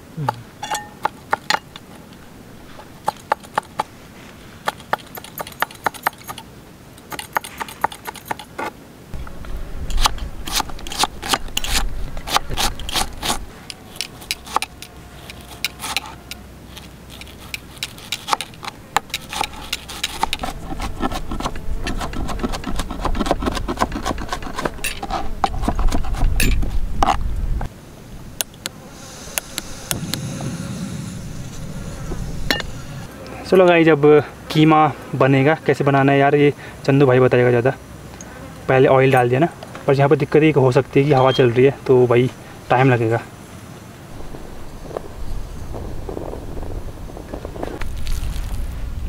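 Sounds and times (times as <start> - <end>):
low rumble: 29.0 - 33.1.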